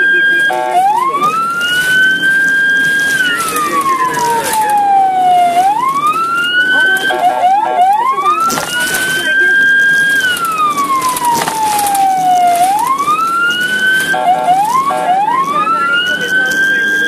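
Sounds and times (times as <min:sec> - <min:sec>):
ambulance siren wailing: 0:00.0 - 0:17.0
siren whoops: 0:00.0 - 0:17.0.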